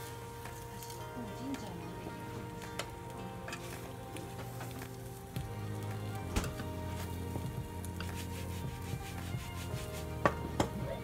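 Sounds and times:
background music: 0.0s - 11.0s
pan knocking on cooktop: 7.5s - 10.8s.

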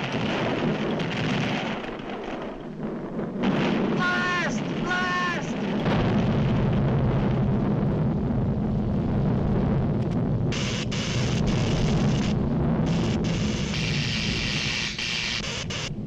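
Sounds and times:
deep volcano rumbling: 0.0s - 16.0s
electrical sparking hiss: 10.5s - 16.0s.

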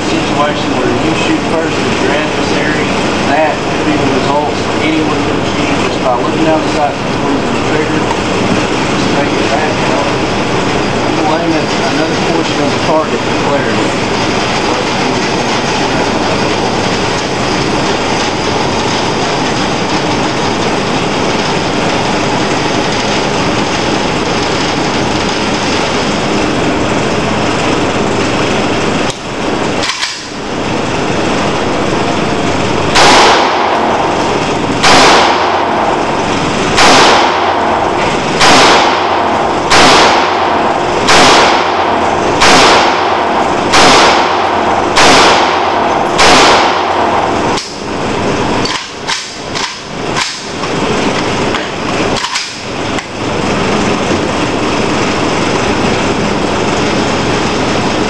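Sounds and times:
steady loud background noise: 0.0s - 58.0s
rifle shots indoors: 29.8s - 30.4s, 32.9s - 53.1s.

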